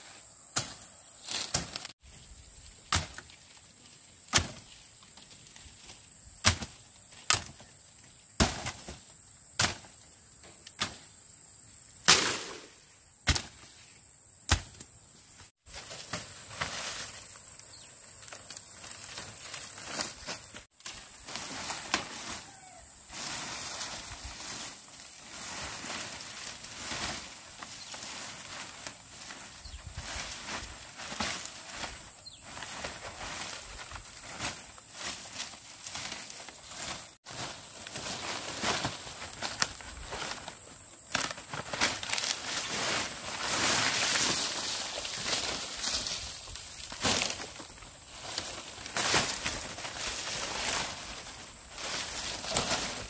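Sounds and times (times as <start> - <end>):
machete chopping brush: 0.6 - 2.0, 2.9 - 3.3, 4.3 - 4.7, 6.4 - 7.6, 8.4 - 9.0, 9.6 - 9.9, 12.0 - 13.7, 14.5 - 14.9
dry leaves rustling and crackling: 15.5 - 53.0.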